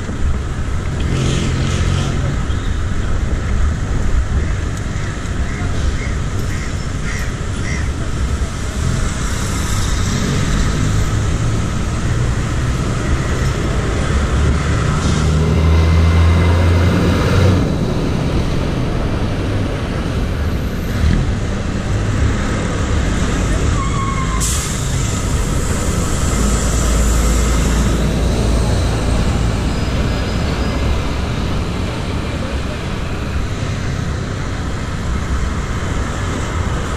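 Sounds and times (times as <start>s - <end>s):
heavy vehicle engine: 0.0s - 36.9s
traffic rumble: 0.0s - 36.9s
wind: 0.0s - 36.9s
crows cawing: 4.4s - 7.9s.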